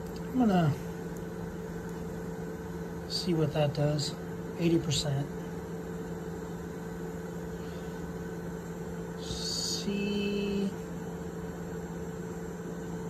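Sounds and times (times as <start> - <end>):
low steady whine: 0.0 - 13.0
printer electrical and fan hum: 0.0 - 13.0.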